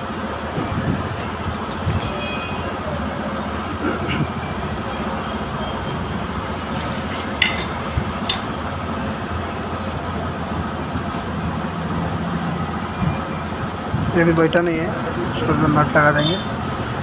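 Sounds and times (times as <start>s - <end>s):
light metal clinks: 6.7s - 8.5s.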